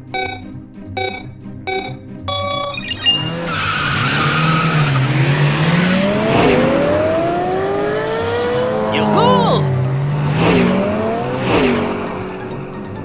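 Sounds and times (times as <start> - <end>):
start signal beep: 0.0 - 3.7
race car engines revving: 3.3 - 13.0.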